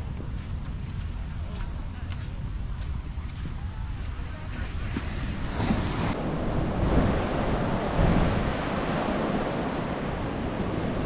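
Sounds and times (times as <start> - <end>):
wind buffeting microphone: 0.0 - 11.0
ocean surf breaking: 4.9 - 11.0.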